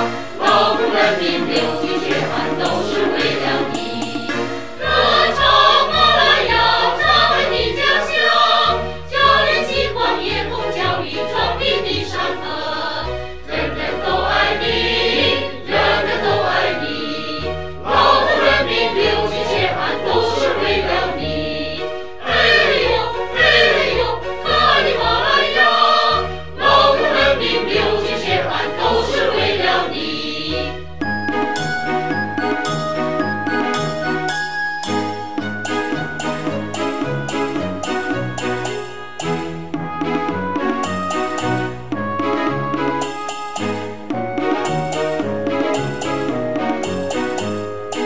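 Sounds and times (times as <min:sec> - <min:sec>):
choir singing: 0:00.0 - 0:30.8
instrumental accompaniment with bass: 0:00.0 - 0:48.0.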